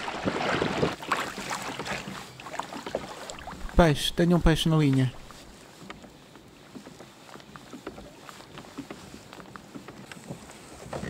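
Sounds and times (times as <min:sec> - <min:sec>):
faint hiss of wind and water: 0:00.0 - 0:11.0
small waves lapping against kayak hull: 0:00.0 - 0:11.0.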